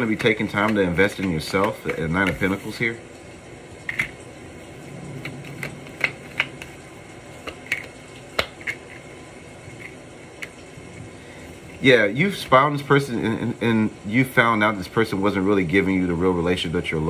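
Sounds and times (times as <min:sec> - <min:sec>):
cards clicking and tapping: 0:00.0 - 0:02.6, 0:03.8 - 0:04.2, 0:05.2 - 0:09.1.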